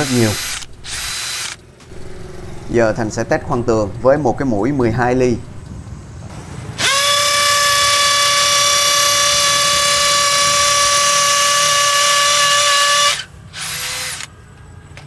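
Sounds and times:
hammer drill buzzing into wall: 0.0s - 1.6s, 6.8s - 14.3s.

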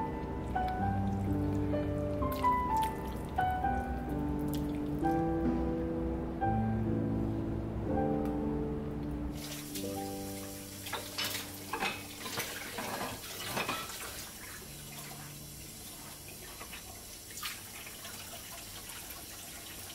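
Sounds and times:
faucet running into sink: 9.4s - 19.9s
dishes clinking: 10.9s - 14.2s.

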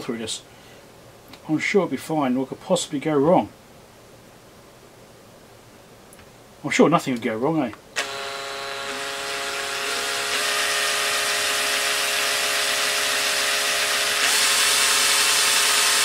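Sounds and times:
cordless drill motor whine: 8.0s - 16.0s.

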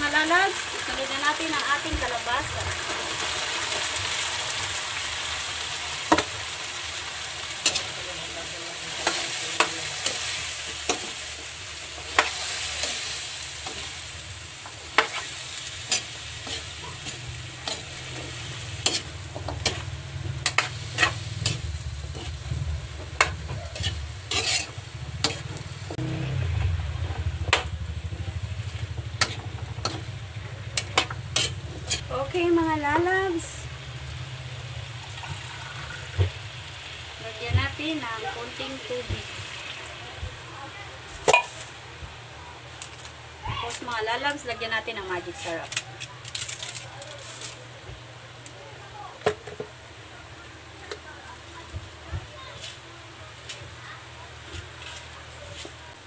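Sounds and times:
food sizzling in oil: 0.0s - 56.0s
metal spatula clinking on pan: 23.2s - 24.7s.

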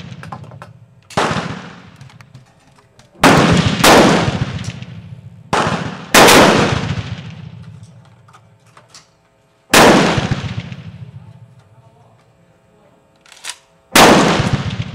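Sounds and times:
pistol shots echoing: 1.1s - 2.0s, 3.2s - 7.7s, 9.7s - 11.0s, 13.9s - 14.9s.

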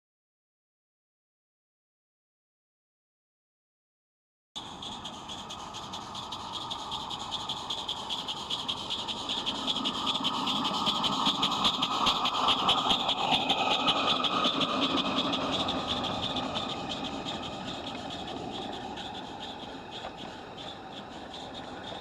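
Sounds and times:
model steam engine exhaust beats: 4.6s - 22.0s
steam hiss: 4.6s - 22.0s.

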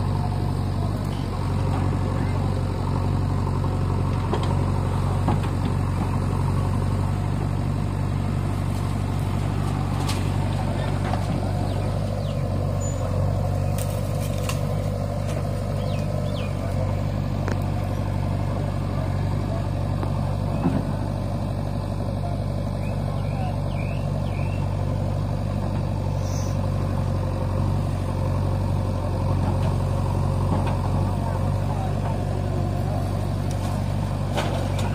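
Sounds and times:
backhoe loader working: 0.0s - 34.9s
diesel tractor engine idling: 0.0s - 34.9s
loader bucket clanking: 3.6s - 24.7s, 28.5s - 34.9s.

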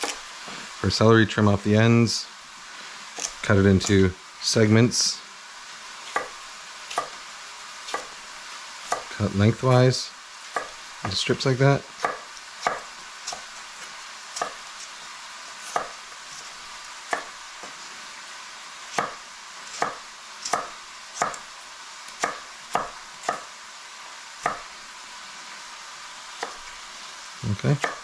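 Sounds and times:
knife chopping on wooden board: 0.0s - 0.2s, 6.1s - 7.2s, 7.9s - 8.2s, 8.8s - 9.1s, 10.5s - 11.2s, 11.9s - 13.5s, 14.4s - 14.7s, 15.6s - 16.5s, 17.1s - 17.8s, 18.9s - 21.5s, 22.1s - 23.5s, 24.4s - 24.7s, 26.4s - 26.6s, 27.7s - 28.0s
meat sizzling in a pan: 0.0s - 28.0s.

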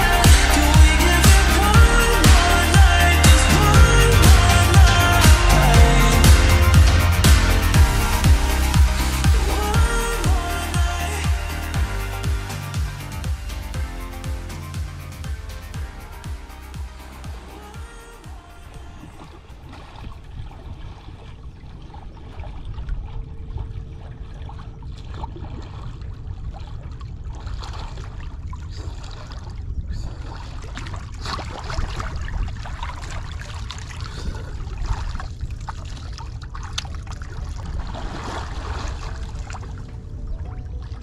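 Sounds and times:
wind rumble on microphone: 17.8s - 41.0s
water lapping among rocks: 18.7s - 41.0s
swimmer splashing: 30.1s - 41.0s.

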